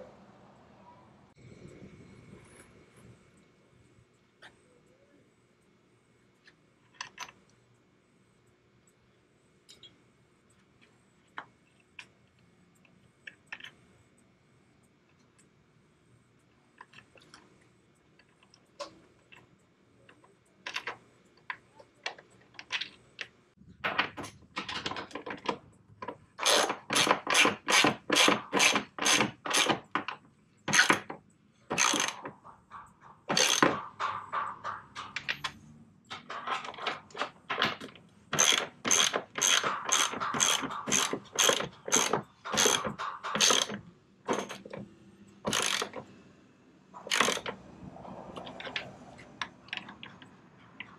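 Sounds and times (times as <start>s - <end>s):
ratchet wrench clicking: 31.8s - 32.2s, 38.4s - 44.6s, 45.5s - 46.0s, 47.1s - 47.5s.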